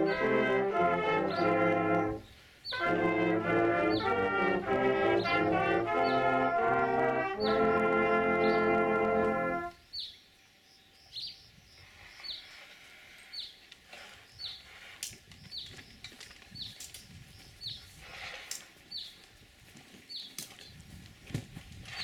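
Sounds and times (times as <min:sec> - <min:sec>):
bird calling: 0:00.0 - 0:10.2.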